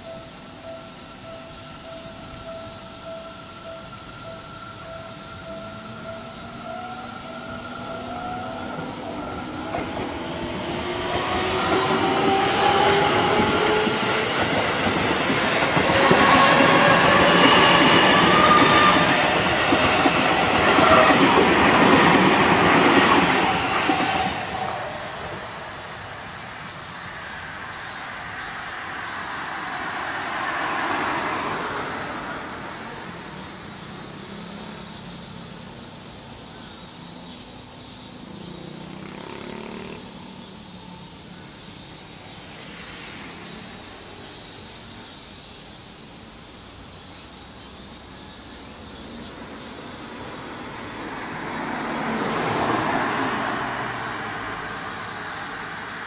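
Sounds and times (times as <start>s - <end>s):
steady high tones: 0.0s - 34.1s
electric train passing: 0.0s - 56.0s
wheels clattering on rails: 6.0s - 26.1s.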